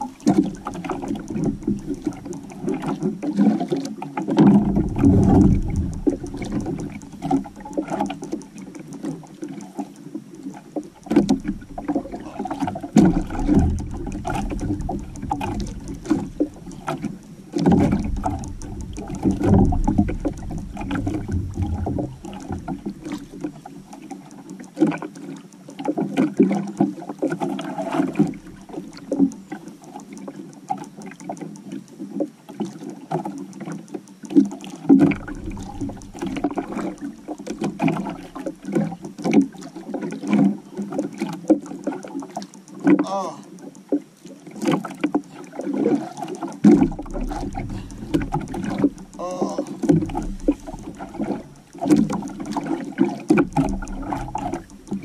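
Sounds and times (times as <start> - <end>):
water slapping against canoe hull: 0.0 - 24.2, 32.1 - 55.0
low rumble: 4.7 - 7.2, 17.8 - 23.1.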